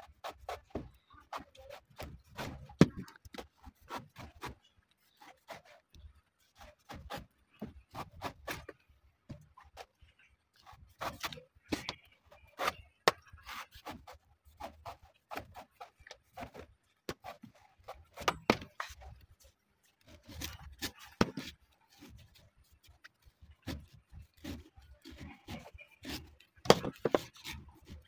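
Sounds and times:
knife cutting coconut husk: 0.1 - 5.8, 10.6 - 19.2, 20.0 - 22.4, 23.1 - 28.0.

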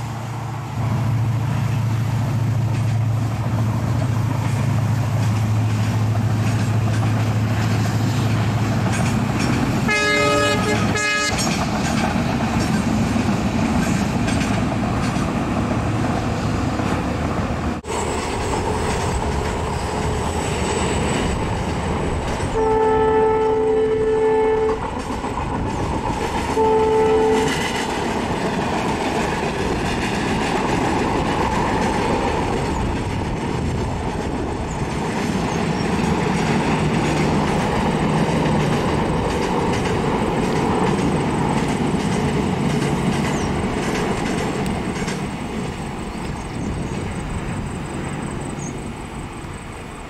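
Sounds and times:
train wheels clattering: 1.5 - 22.8, 23.4 - 48.8
locomotive horn blasts: 9.8 - 11.6, 22.5 - 24.9, 26.5 - 27.8.

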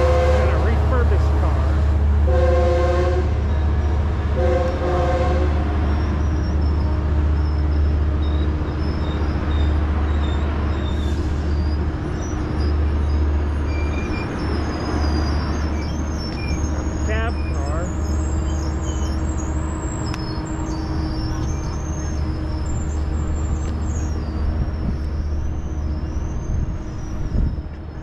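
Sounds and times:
train horn blasts: 0.0 - 1.0, 2.2 - 3.4, 4.3 - 5.8
low rumble of moving train: 0.0 - 28.0.

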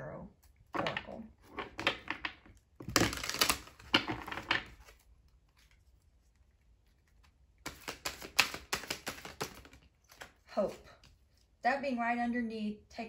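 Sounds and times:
cards being shuffled: 0.8 - 6.2, 6.8 - 11.6.

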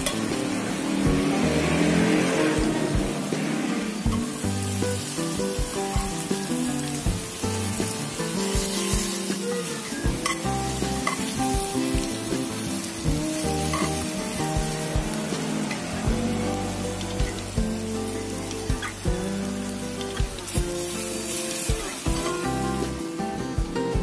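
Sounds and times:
chicken sizzling in oil: 0.0 - 24.0.

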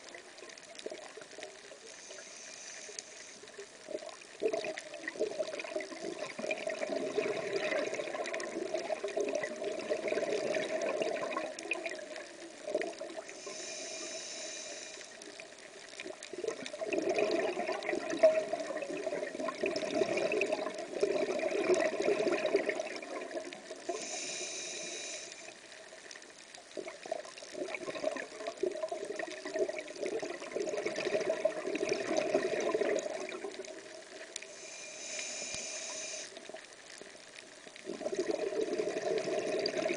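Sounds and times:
regulator inhalation hiss: 1.8 - 3.7, 13.3 - 15.4, 23.9 - 25.6, 34.4 - 36.6
bubbling exhalations underwater: 4.4 - 12.1, 16.3 - 23.5, 26.8 - 33.7, 37.8 - 39.9.

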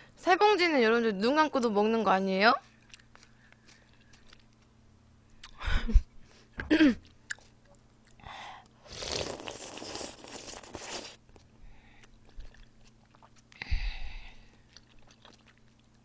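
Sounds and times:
chewing: 2.6 - 4.8, 9.0 - 13.6, 14.5 - 16.0
slurping noodles: 8.8 - 11.2
loud mouth sounds: 8.9 - 11.2.

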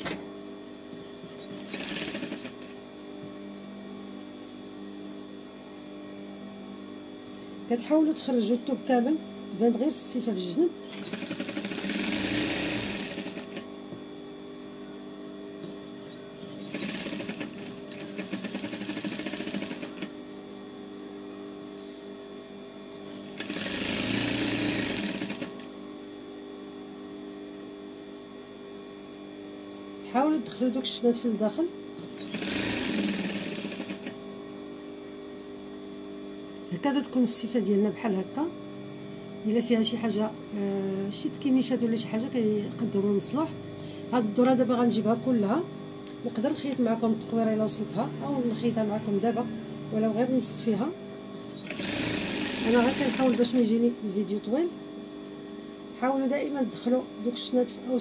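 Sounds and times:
steady machine hum: 0.0 - 58.0
sewing machine humming: 1.5 - 2.8, 10.8 - 13.7, 16.6 - 20.1, 23.1 - 25.7, 32.0 - 34.2, 51.6 - 53.7.

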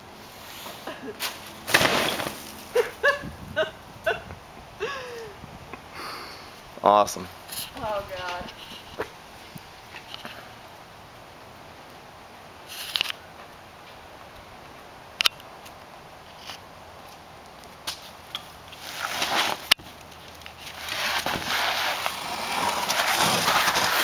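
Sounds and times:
rustling and scuffing of box spring: 0.2 - 3.0, 18.7 - 24.0.

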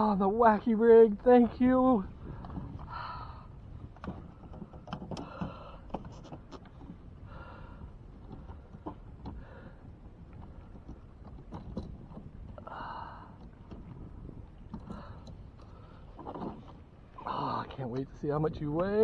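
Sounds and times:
light clicks and knocks: 3.9 - 7.0, 10.3 - 12.6.

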